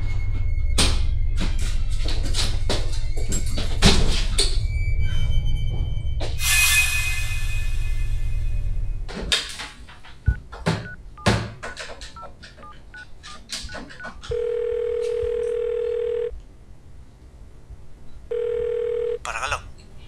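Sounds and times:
keypad beeps: 0:10.3 - 0:16.3
telephone ringing tone: 0:14.2 - 0:16.3, 0:18.3 - 0:19.3.

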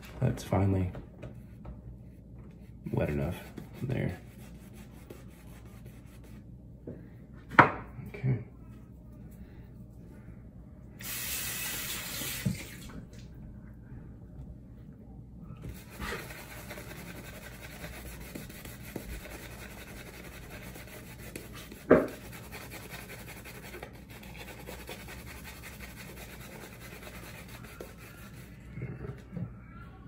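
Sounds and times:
shaving brush scrubbing beard: 0:15.7 - 0:28.6.

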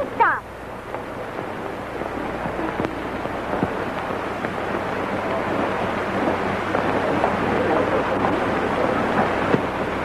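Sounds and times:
low even hum: 0:00.0 - 0:10.0
steady rushing noise: 0:00.0 - 0:10.0.

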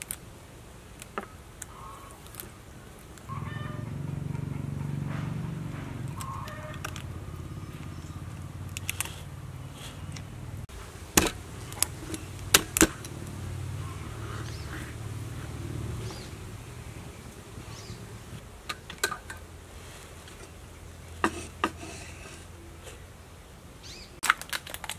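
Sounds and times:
steady low hum: 0:00.4 - 0:23.8.

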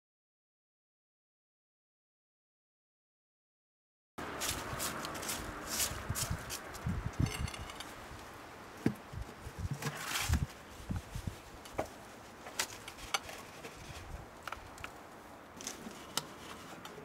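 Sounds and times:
scraping rustle: 0:04.2 - 0:08.3, 0:09.0 - 0:17.0
meter cover knocks and scrape: 0:07.2 - 0:07.9.

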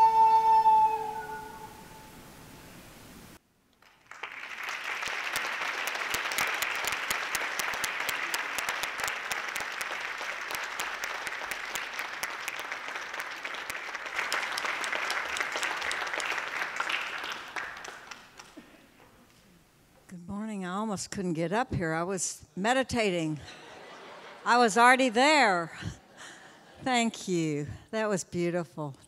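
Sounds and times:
audience applauding: 0:03.7 - 0:18.8.

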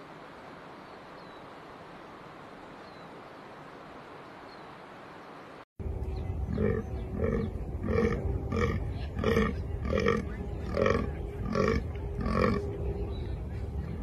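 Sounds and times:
deer grunting: 0:06.5 - 0:12.7.

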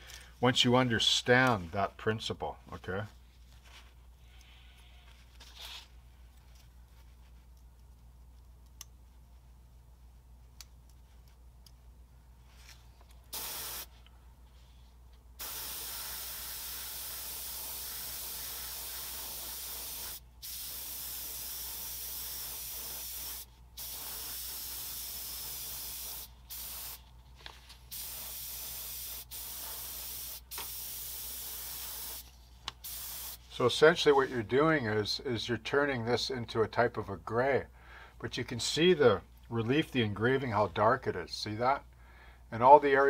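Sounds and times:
airbrush spraying hiss: 0:13.3 - 0:14.0, 0:15.4 - 0:27.1, 0:27.9 - 0:33.6.

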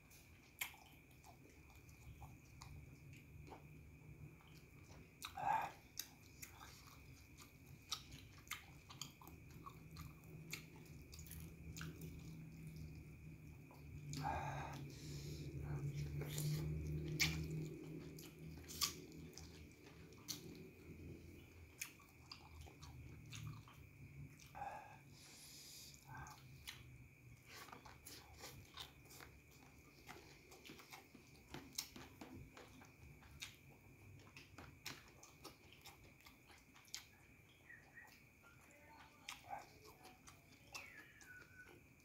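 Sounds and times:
person chewing food: 0:00.0 - 0:42.0
mouth clicks and smacks: 0:04.4 - 0:20.6, 0:26.0 - 0:38.4.

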